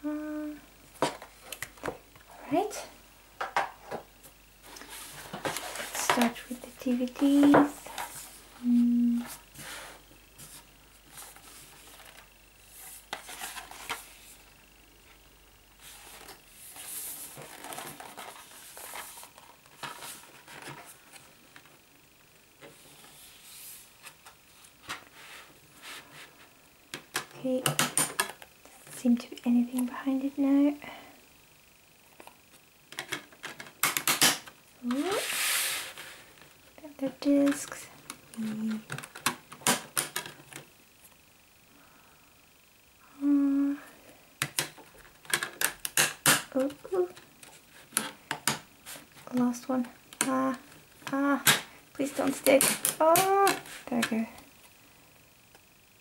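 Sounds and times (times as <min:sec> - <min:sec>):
person humming: 0:00.0 - 0:00.7, 0:08.6 - 0:09.4, 0:34.8 - 0:35.3, 0:37.8 - 0:38.9, 0:43.0 - 0:44.0.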